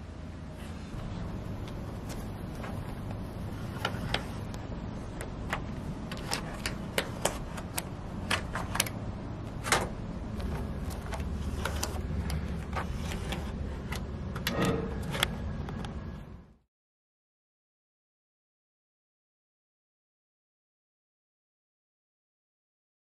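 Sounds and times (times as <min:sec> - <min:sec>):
steady low rumble: 0:00.0 - 0:16.6.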